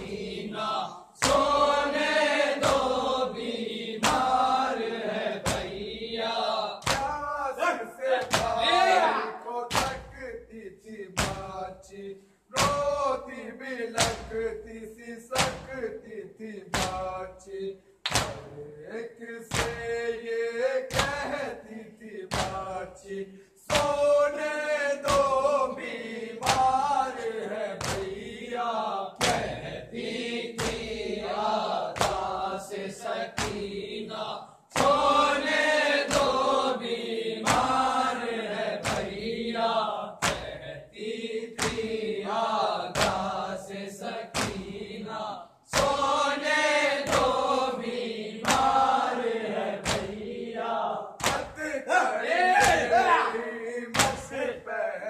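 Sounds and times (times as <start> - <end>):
men chanting a lament: 0.0 - 55.0
hands beating chests: 6.8 - 7.3, 8.2 - 8.9, 9.7 - 10.2, 11.2 - 11.6, 12.6 - 12.9, 18.0 - 18.5, 27.8 - 28.2, 31.9 - 32.4, 33.4 - 33.7, 38.8 - 39.2, 40.2 - 40.5, 49.8 - 50.2, 51.2 - 51.7, 52.6 - 53.0, 53.9 - 54.3.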